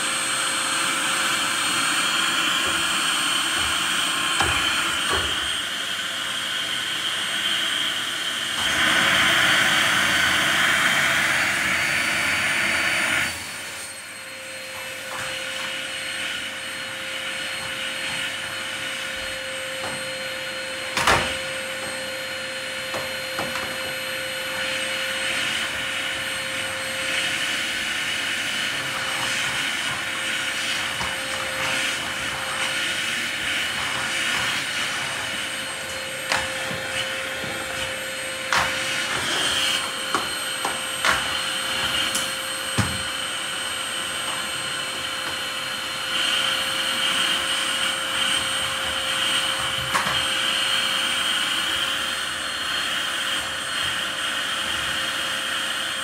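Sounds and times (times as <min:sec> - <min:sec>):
vacuum cleaner on tiled floor: 0:00.0 - 0:56.0.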